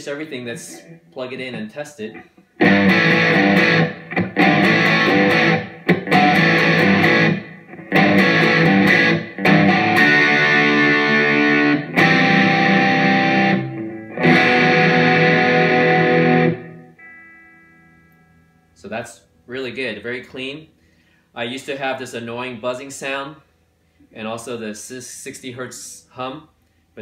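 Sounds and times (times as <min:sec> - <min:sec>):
distorted electric guitar chords: 0:00.7 - 0:18.8.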